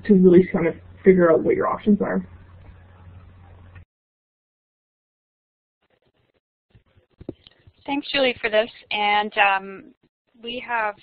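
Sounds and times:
low microphone hum: 0:00.0 - 0:03.8.

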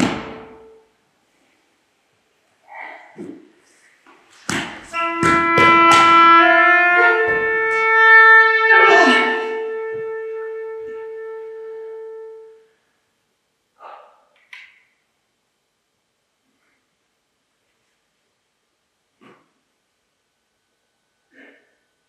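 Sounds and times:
sharp percussive hits: 0:00.0 - 0:00.7, 0:04.5 - 0:08.1
long held musical notes: 0:04.8 - 0:12.7.

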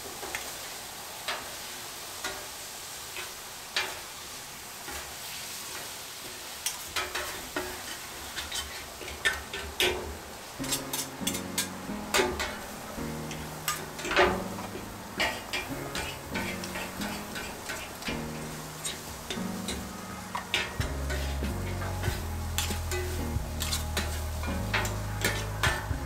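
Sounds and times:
scallops sizzling on a griddle: 0:00.0 - 0:26.0
metal spatula scraping a griddle: 0:06.9 - 0:26.0.

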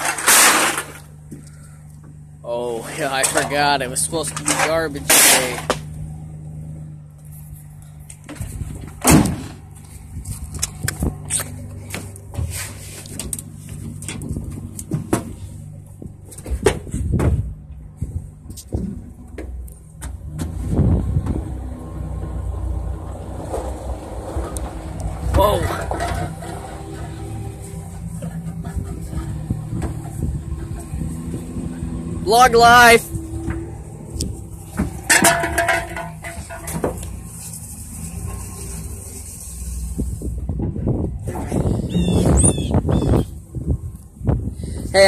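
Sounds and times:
truck engine rumbling: 0:00.0 - 0:45.0
sharp knocks and rattles: 0:23.2 - 0:32.0, 0:33.2 - 0:38.5
person's voice: 0:25.3 - 0:25.9, 0:32.2 - 0:33.1.

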